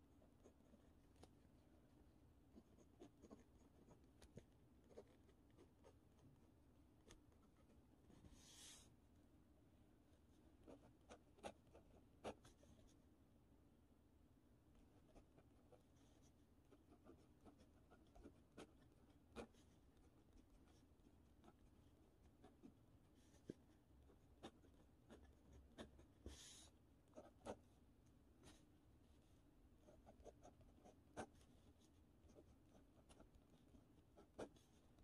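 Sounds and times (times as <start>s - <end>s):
pen scratching on paper: 2.6s - 6.2s, 10.4s - 13.0s, 14.8s - 35.0s.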